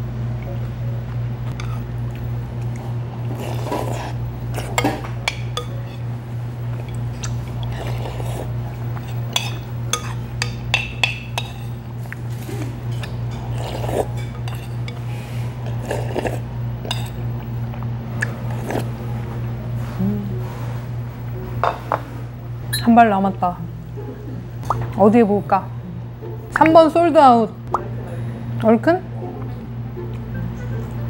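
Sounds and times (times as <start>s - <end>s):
steady low hum: 0.0s - 31.0s
metal spoon clinking on a bowl: 4.8s - 6.0s, 9.3s - 11.8s.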